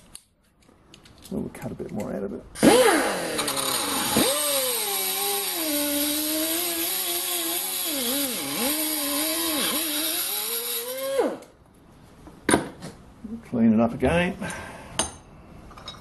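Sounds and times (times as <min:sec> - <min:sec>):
die grinder whining: 0:02.6 - 0:11.5.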